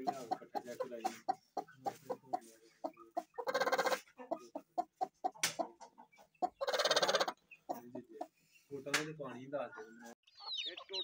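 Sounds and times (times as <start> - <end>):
chicken clucking: 0.0 - 8.9, 9.6 - 11.0
chicken squawk: 3.4 - 4.4, 5.0 - 7.9.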